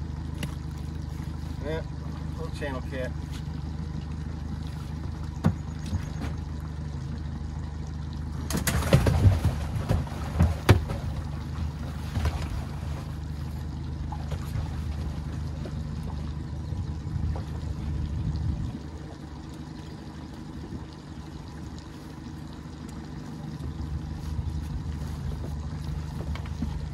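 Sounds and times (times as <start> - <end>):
gear knocking and rattling in boat: 0.0 - 7.0, 8.3 - 18.7, 22.9 - 26.9
steady low rumble: 0.0 - 26.9.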